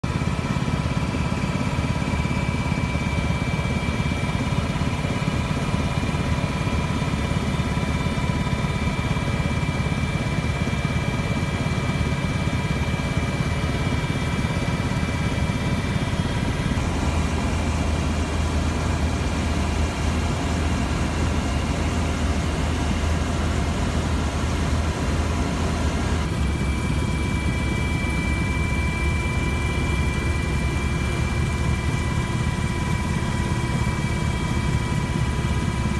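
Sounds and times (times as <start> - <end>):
aircraft engine rumble: 0.2 - 7.6, 8.2 - 35.9
high whining tones: 16.4 - 31.0.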